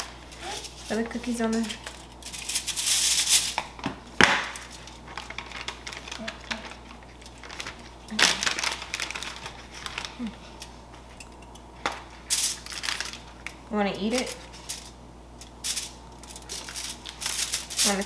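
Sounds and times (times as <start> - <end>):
foil crinkling: 0.0 - 10.6, 12.1 - 18.0
packaging rustling: 4.5 - 10.5, 12.3 - 14.9, 15.6 - 18.0.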